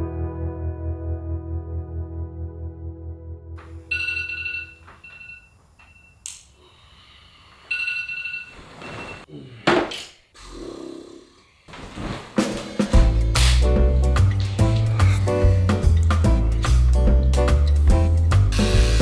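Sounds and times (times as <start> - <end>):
ambient music: 0.0 - 3.6, 12.6 - 19.0
bedding rustling: 8.1 - 9.3, 11.7 - 15.3.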